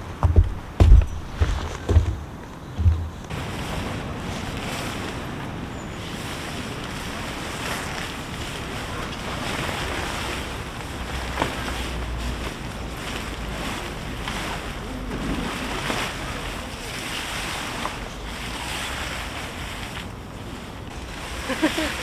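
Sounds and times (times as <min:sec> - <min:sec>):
wind: 0:00.0 - 0:22.0
low thump: 0:02.8 - 0:03.2
tent fabric rustling: 0:02.8 - 0:22.0
rain: 0:03.3 - 0:22.0.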